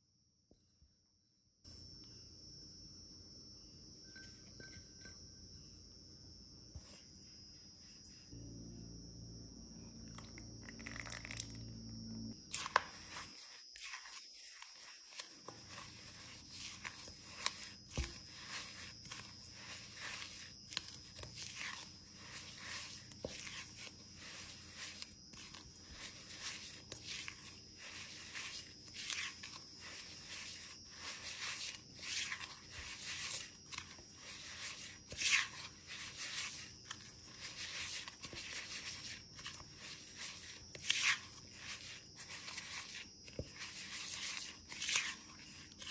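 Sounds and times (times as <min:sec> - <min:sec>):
cookies crunching in a glass bowl: 0:10.1 - 0:11.7, 0:12.5 - 0:45.9.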